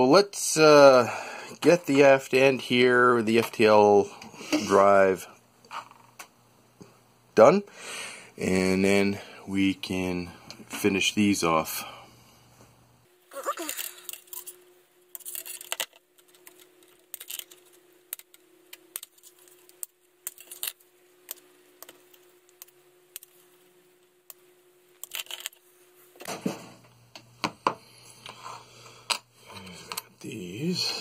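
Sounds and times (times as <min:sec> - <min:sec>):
plastic parts set down on a mat: 0:26.2 - 0:27.8.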